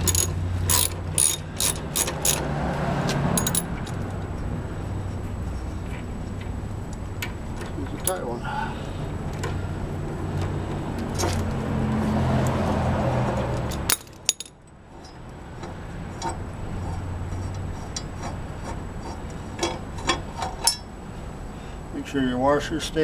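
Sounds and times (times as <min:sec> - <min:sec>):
metal tools clinking on concrete: 0:00.0 - 0:02.4, 0:03.4 - 0:04.2, 0:07.6 - 0:08.4, 0:13.6 - 0:15.3, 0:19.6 - 0:20.9.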